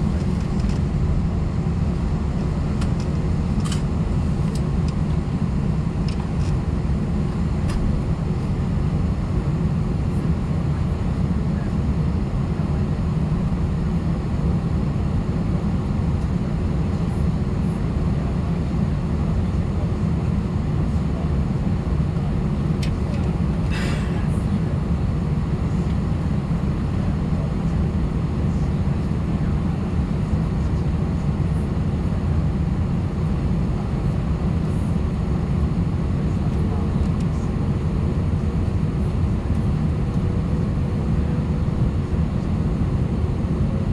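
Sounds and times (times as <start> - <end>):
airliner cabin rumble: 0.0 - 43.9.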